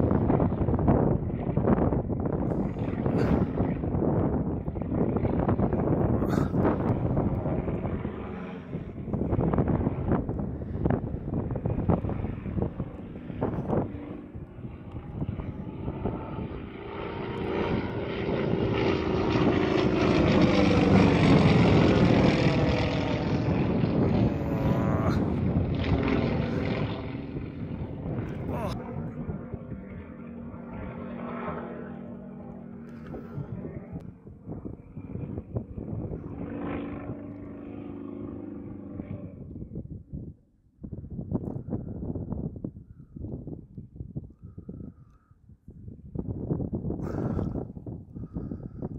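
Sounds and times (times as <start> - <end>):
propeller plane engine running hard: 0.0 - 48.9.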